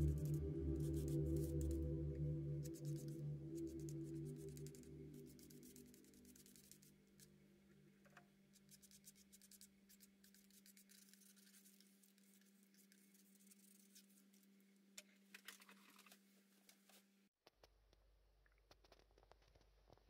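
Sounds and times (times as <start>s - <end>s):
steady low hum: 0.0s - 6.6s
painting knife dabbing paper: 8.6s - 14.4s.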